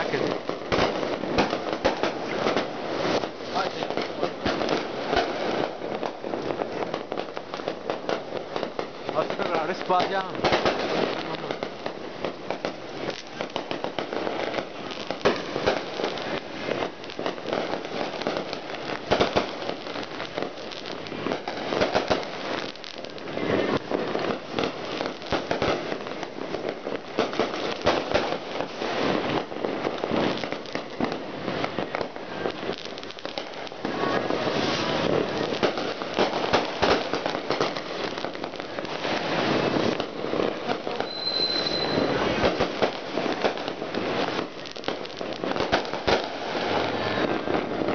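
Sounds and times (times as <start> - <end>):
fireworks crackling and banging: 0.0 - 47.9
high firework whistle: 40.9 - 42.6.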